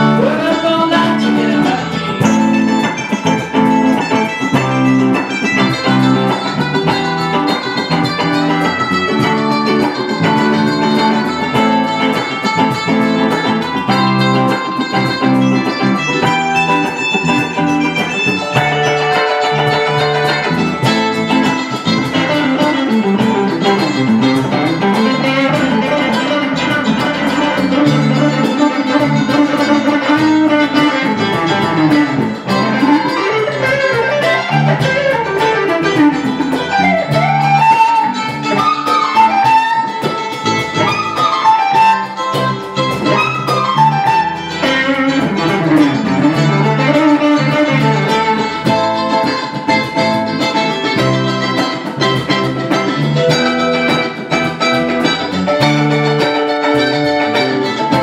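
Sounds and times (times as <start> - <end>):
electric guitar bending notes: 0.0 - 58.0
live band music: 0.0 - 58.0.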